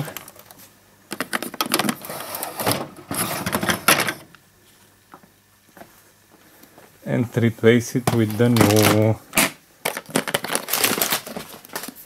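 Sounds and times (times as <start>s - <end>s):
plastic cartridge scraping and clattering: 1.1s - 4.2s.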